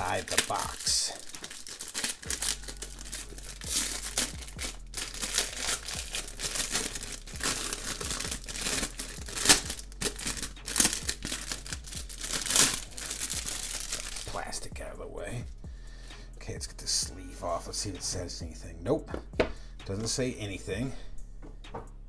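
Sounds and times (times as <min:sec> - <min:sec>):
plastic wrapping crinkling: 0:00.0 - 0:14.4.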